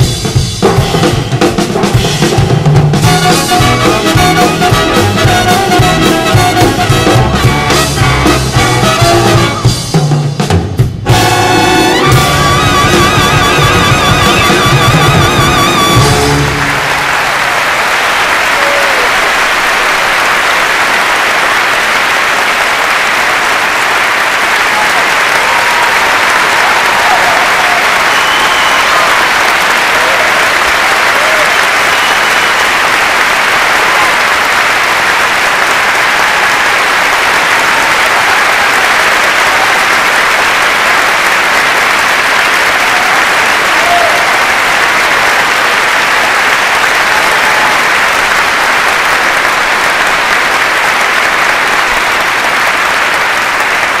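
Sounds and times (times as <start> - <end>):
audience applauding: 2.4 - 9.9, 11.1 - 54.0
faint shouts and cheers: 18.4 - 19.3, 24.6 - 32.2, 42.7 - 44.5, 46.9 - 48.0.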